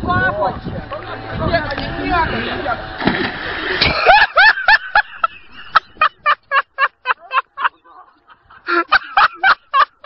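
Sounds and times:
man laughing: 3.8s - 10.0s.

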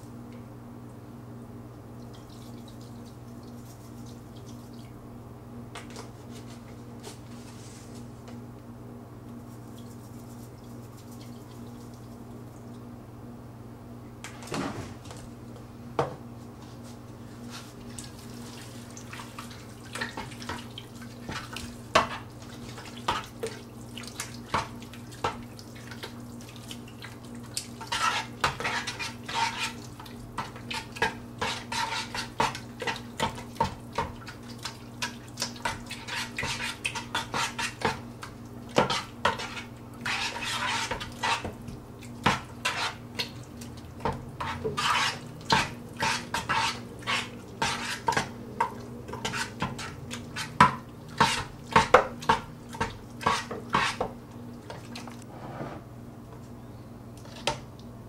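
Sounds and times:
hands mixing wet ground meat: 2.1s - 4.9s, 9.3s - 12.8s, 16.4s - 55.2s.

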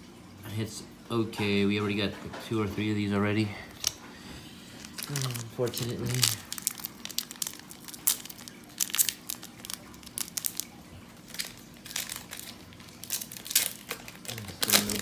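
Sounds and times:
foil wrapper crinkling and tearing: 4.7s - 15.0s.

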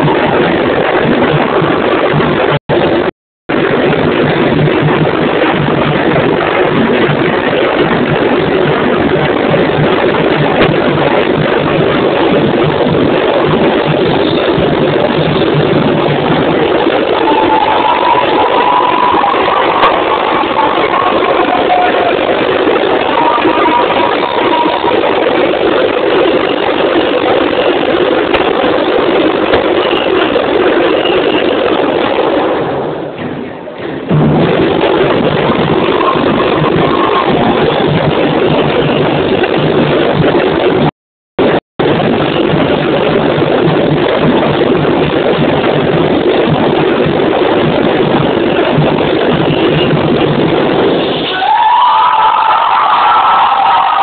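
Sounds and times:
samba drum section playing loudly: 13.7s - 26.8s.

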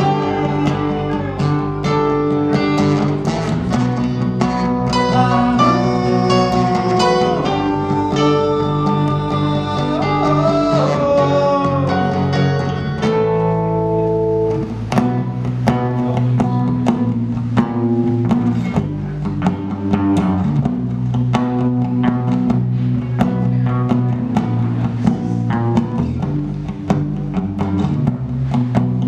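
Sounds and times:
person singing: 0.0s - 2.0s, 4.9s - 12.9s
electric bass line: 0.0s - 29.0s
strummed acoustic guitar: 0.0s - 29.0s.

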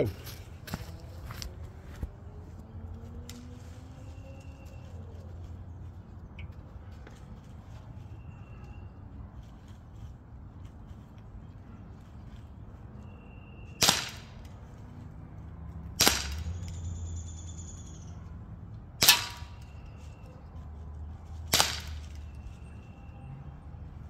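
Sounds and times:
pistol shots cracking: 13.8s - 14.4s, 16.0s - 16.6s, 19.0s - 19.6s, 21.5s - 22.1s.

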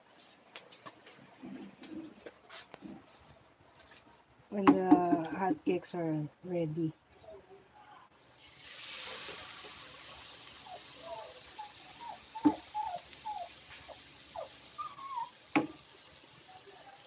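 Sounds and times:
batter sizzling in oil: 8.2s - 17.0s.

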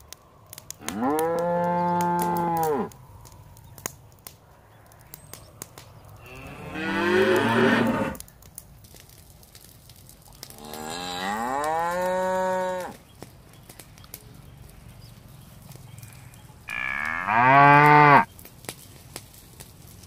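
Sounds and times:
cattle mooing: 6.2s - 8.2s, 16.7s - 18.3s.

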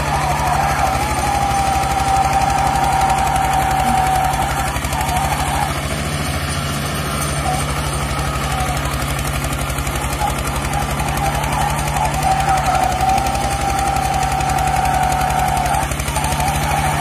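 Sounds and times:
tractor diesel engine under load: 0.0s - 17.0s
wheels spinning in loose dirt: 0.0s - 17.0s.

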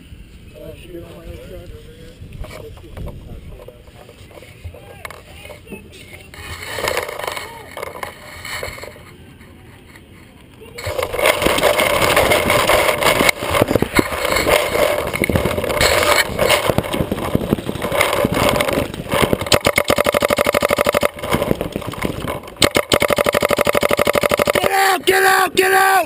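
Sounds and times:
paintball marker firing: 17.8s - 24.8s.

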